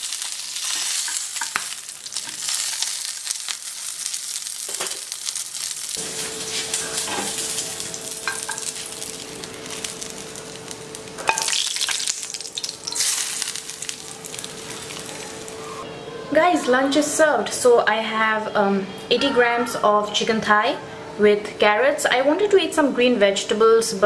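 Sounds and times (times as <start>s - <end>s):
chicken sizzling in oil: 0.0s - 15.8s.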